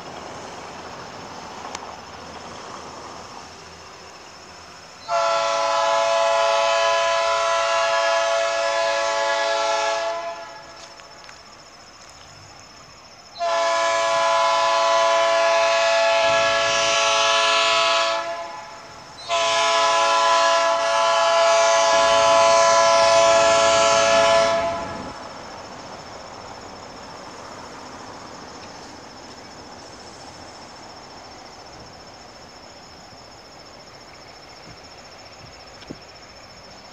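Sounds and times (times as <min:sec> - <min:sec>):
locomotive air horn chord: 0:05.0 - 0:10.8, 0:13.4 - 0:25.2.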